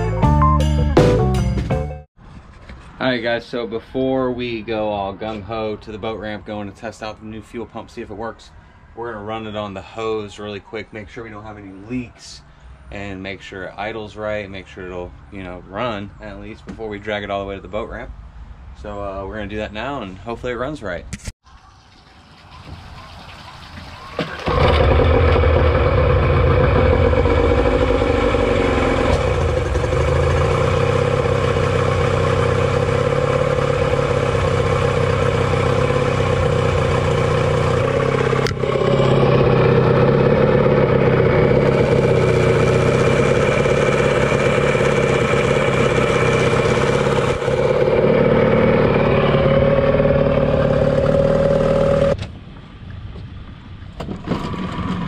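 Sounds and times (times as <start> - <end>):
outboard motor running: 24.3 - 52.2, 54.1 - 55.0.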